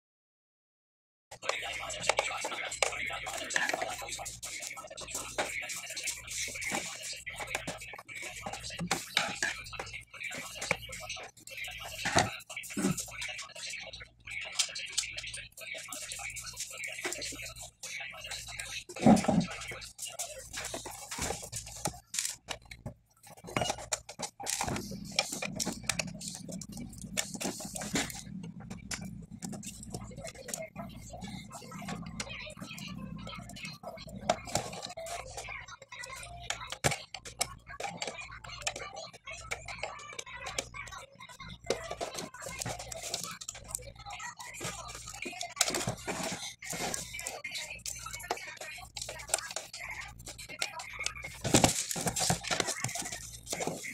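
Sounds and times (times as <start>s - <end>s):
hands handling plastic: 1.4s - 13.7s, 14.3s - 32.5s, 41.4s - 53.9s.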